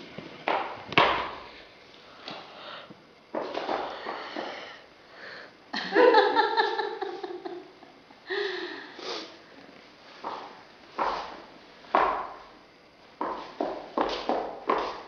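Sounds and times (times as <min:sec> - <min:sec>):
sniff-like breaths: 0:08.8 - 0:09.4.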